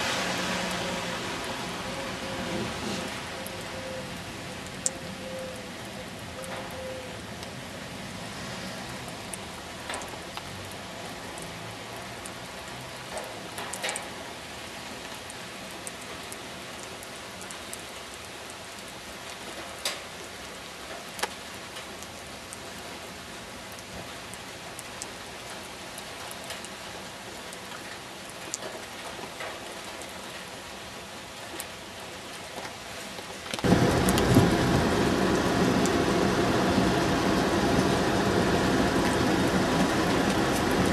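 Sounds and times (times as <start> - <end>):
loud steady noise: 0.0 - 3.2, 33.6 - 40.9
steady rain: 0.0 - 40.9.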